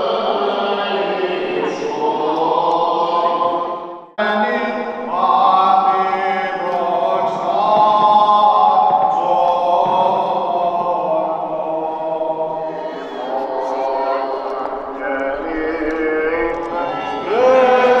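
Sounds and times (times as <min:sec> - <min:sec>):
unaccompanied voices chanting: 0:00.0 - 0:18.0.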